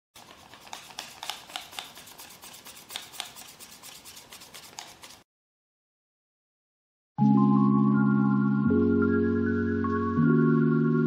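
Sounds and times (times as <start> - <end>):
paper rustling and crinkling: 0.2 - 5.2.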